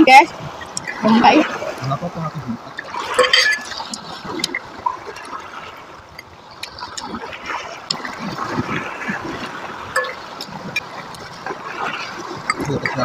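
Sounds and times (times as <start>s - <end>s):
waves washing over pebbles: 0.0s - 13.0s.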